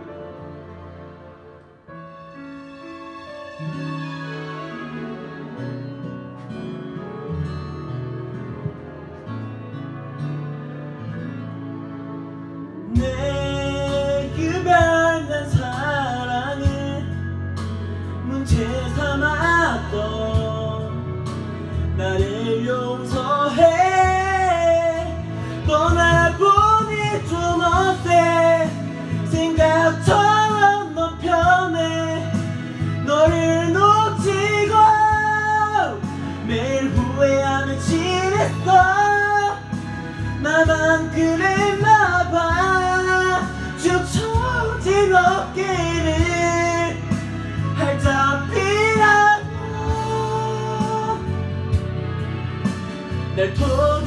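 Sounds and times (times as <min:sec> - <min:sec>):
pop backing track: 0:00.0 - 0:54.0
man singing into microphone: 0:12.8 - 0:51.8, 0:53.2 - 0:54.0.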